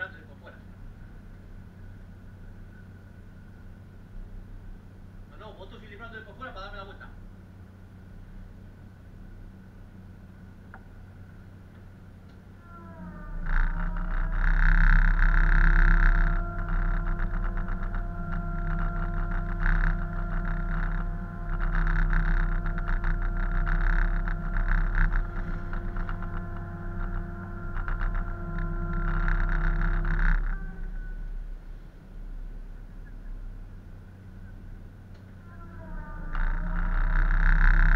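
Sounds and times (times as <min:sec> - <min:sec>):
deep machinery rumble: 0:00.0 - 0:37.9
mechanical whine: 0:00.0 - 0:37.9
heavy rattling: 0:12.6 - 0:31.7, 0:35.7 - 0:37.9.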